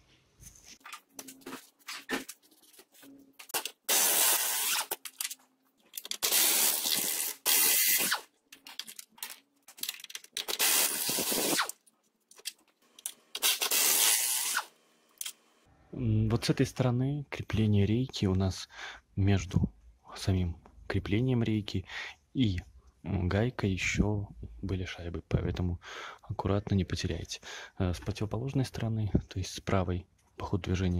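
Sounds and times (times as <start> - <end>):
aerosol can spraying: 3.6 - 5.0, 10.5 - 11.7, 13.4 - 14.7.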